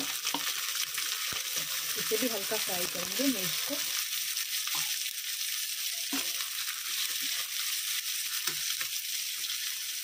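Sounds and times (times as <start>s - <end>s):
oil sizzling in a pan: 0.0s - 10.0s
stirring sounds: 5.9s - 9.0s.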